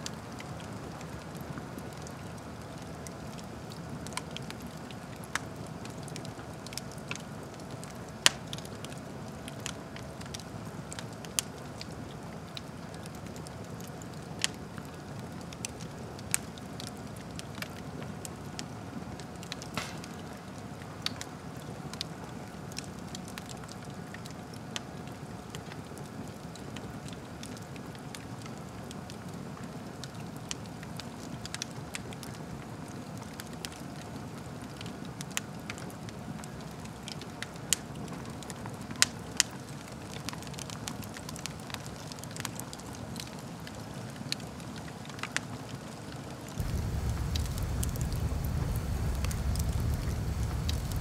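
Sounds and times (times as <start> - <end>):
wood fire crackling: 0.0 - 51.0
logs popping and snapping: 19.7 - 20.3, 46.6 - 51.0.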